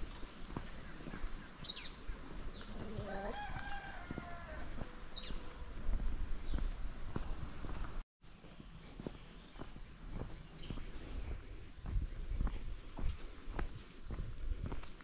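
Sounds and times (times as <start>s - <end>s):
rooster crowing: 2.8s - 5.1s.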